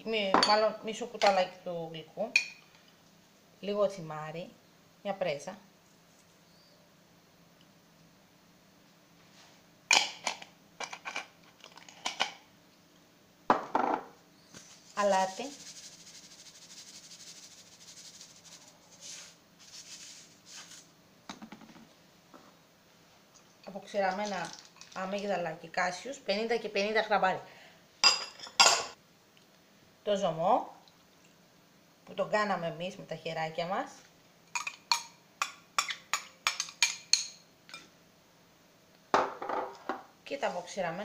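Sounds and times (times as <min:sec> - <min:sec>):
salt grains falling hiss: 0:14.5 - 0:20.9
metal spoon clinking on glass bowl: 0:34.6 - 0:37.8.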